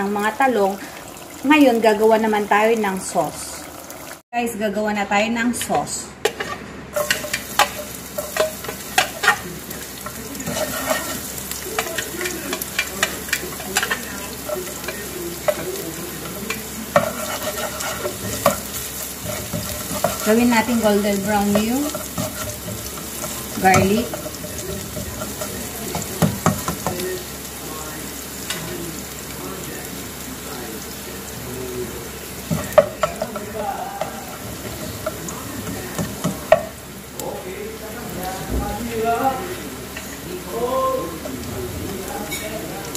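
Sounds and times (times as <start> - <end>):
garlic sizzling in oil: 0.0 - 4.2, 6.2 - 42.9
spatula clinking on metal bowl: 5.6 - 27.0, 32.5 - 36.8.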